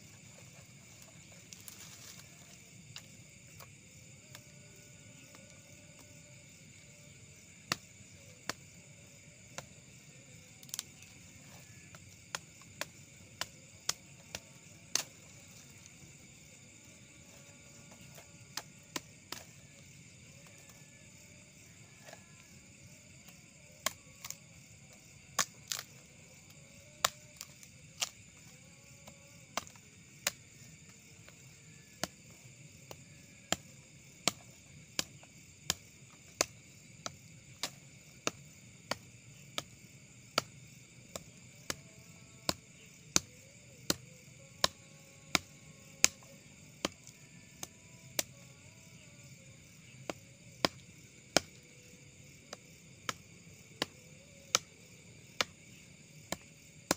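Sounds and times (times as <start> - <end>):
night insects chorus: 0.0 - 56.9
blade chopping branches: 25.4 - 25.9.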